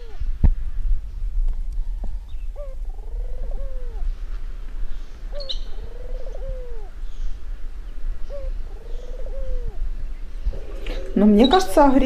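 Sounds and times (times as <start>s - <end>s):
dove cooing: 0.0s - 0.3s, 2.5s - 4.1s, 5.3s - 7.4s, 8.2s - 12.0s.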